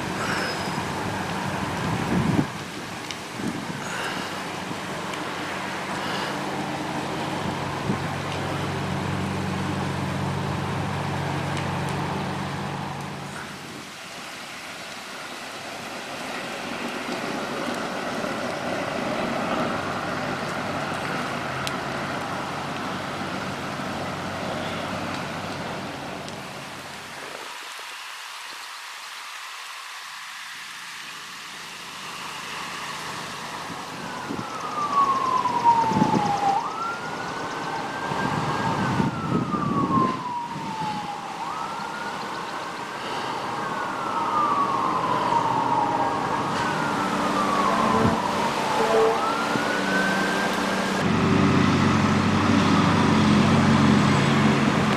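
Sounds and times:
low engine hum: 0.0 - 13.8, 43.0 - 54.9
fire crackling: 0.0 - 54.9
siren wailing: 32.6 - 54.9.

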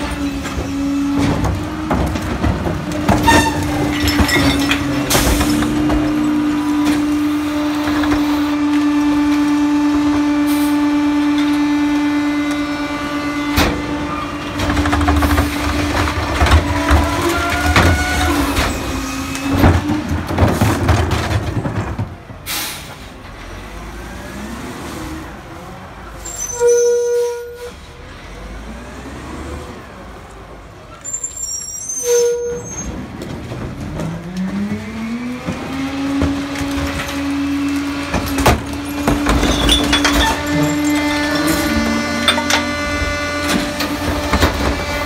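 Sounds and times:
garbage truck engine running: 0.0 - 24.6, 32.8 - 45.0
air brake hiss: 22.5 - 23.1.

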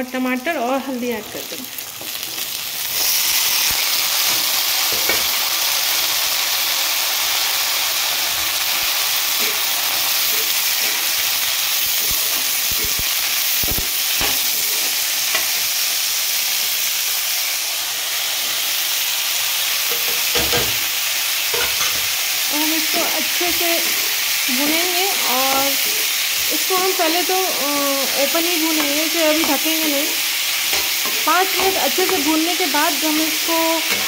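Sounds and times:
vegetables sizzling in hot oil: 0.0 - 34.0
metal spatula scraping and knocking pan: 21.5 - 22.1, 30.6 - 32.7.

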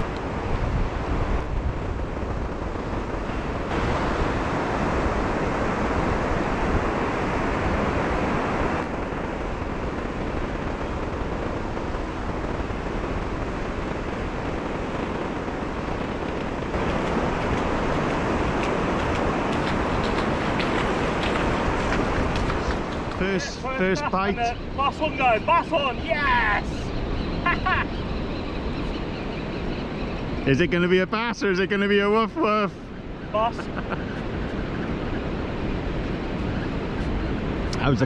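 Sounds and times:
surf breaking on beach: 0.0 - 26.8
wind buffeting microphone: 0.0 - 38.0.

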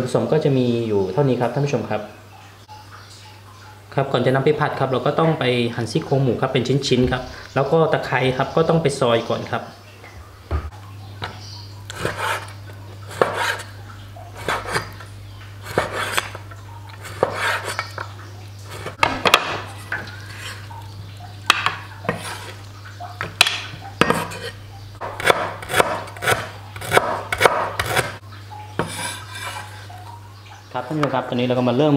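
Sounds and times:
knife chopping on board: 13.1 - 13.6, 15.7 - 16.4, 17.1 - 17.8, 23.4 - 28.2.

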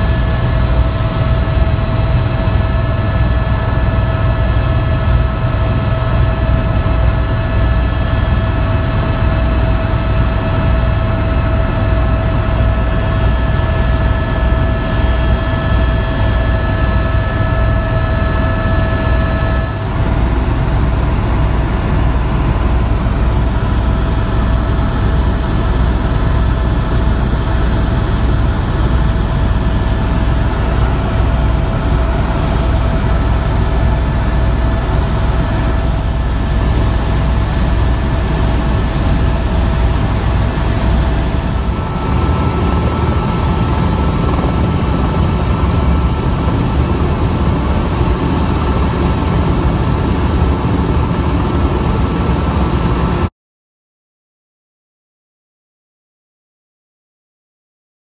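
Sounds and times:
helicopter rotor drone: 0.0 - 53.3
turbine whine: 0.0 - 53.3.

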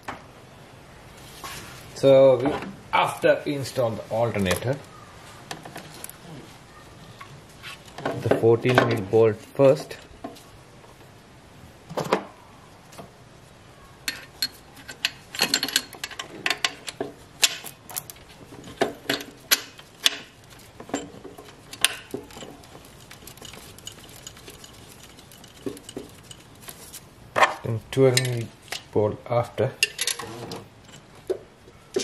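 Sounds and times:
metallic clicks and clinks: 14.1 - 27.0, 28.0 - 28.9.

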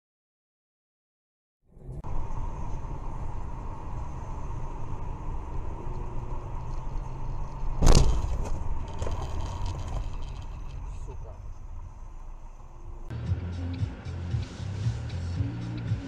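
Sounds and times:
car road and engine rumble: 1.7 - 16.0
faint steady whine: 2.0 - 13.1
loud thump: 7.8 - 9.2.

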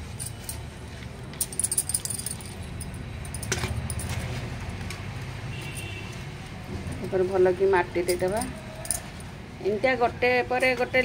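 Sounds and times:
bangles jingling: 0.0 - 0.6, 1.4 - 4.3, 8.0 - 9.3.

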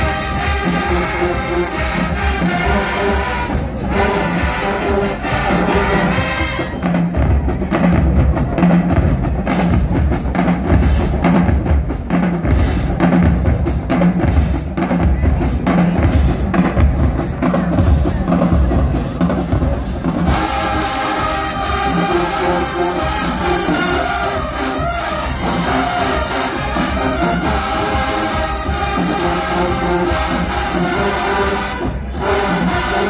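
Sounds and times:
marching band horns: 0.0 - 8.0, 20.1 - 33.0
drumline cadence: 0.0 - 33.0.

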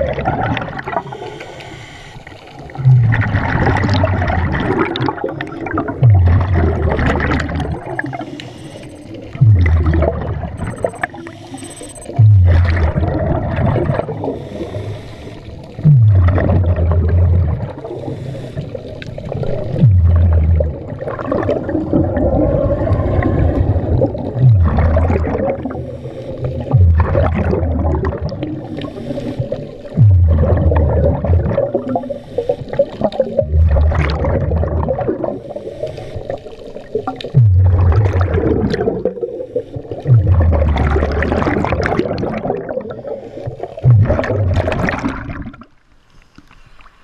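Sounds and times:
diver exhaling bubbles: 0.0 - 1.9, 2.5 - 45.7
watery hiss: 1.0 - 2.8, 7.6 - 9.4, 10.8 - 12.9, 13.9 - 15.8, 17.7 - 19.8, 25.6 - 26.8, 28.4 - 30.0, 31.8 - 33.1, 35.2 - 37.4.

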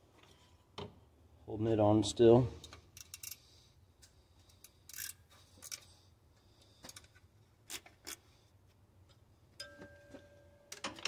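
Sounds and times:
hand ratchet clicking: 3.0 - 3.4, 4.9 - 5.8.

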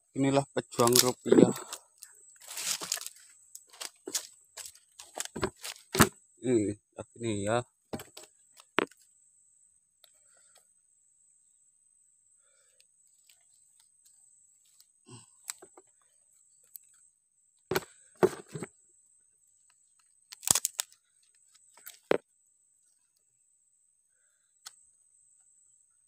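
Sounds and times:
digging in mud with cracks and knocks: 0.8 - 6.1, 20.3 - 22.3.

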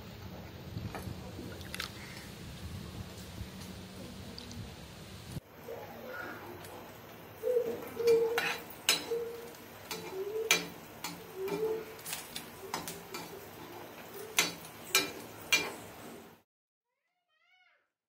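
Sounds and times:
low cooing call: 5.6 - 14.6
prawns clinking in a steel bowl: 7.4 - 16.2.

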